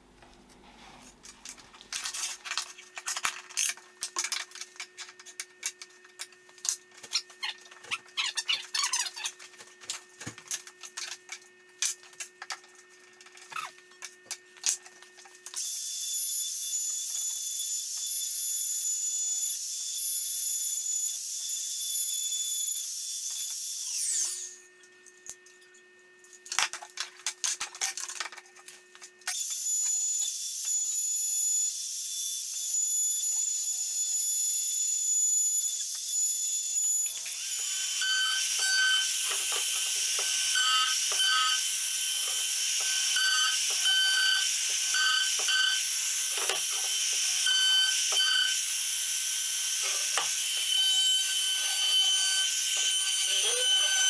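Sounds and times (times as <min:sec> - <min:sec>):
router bit cutting wood: 0:37.0 - 0:54.0
trim router whining: 0:37.0 - 0:54.0.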